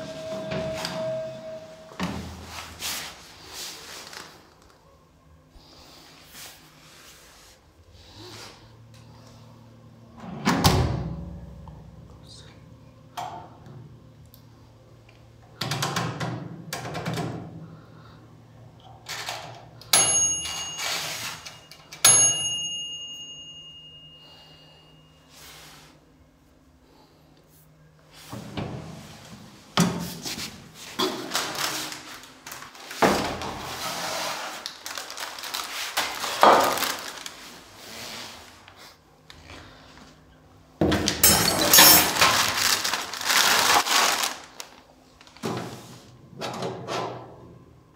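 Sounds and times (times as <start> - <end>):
plastic wrapping crinkling: 31.2 - 33.0, 34.0 - 37.8, 42.1 - 45.4
metal clinks: 41.2 - 42.2.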